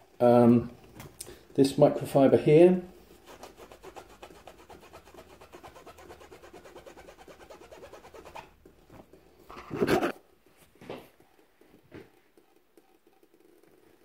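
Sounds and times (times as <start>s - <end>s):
cloth rubbing on comb: 3.1s - 10.2s.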